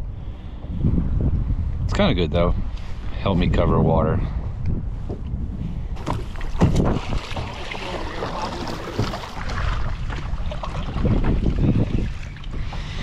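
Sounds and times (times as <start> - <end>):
wind buffeting microphone: 0.0 - 13.0
water lapping against hull: 5.0 - 13.0
paddle splashes: 6.0 - 13.0.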